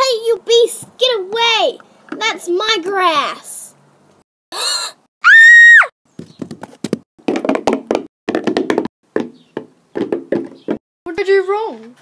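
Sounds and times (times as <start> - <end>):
clopping knocks like hooves: 6.1 - 10.8.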